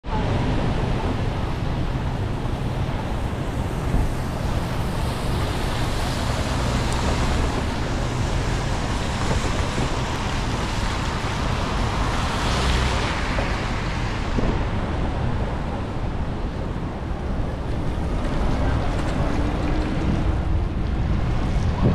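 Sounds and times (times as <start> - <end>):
wind buffeting microphone: 0.0 - 21.9
hiss of wet street: 2.1 - 19.0.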